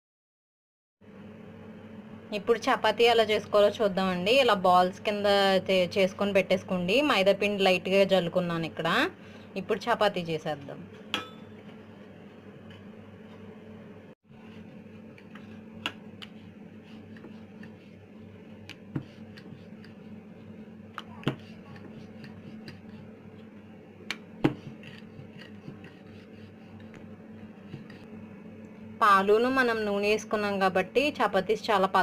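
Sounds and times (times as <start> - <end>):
steady low hum: 1.0 - 32.0
rolling pin rolling dough: 14.3 - 28.1.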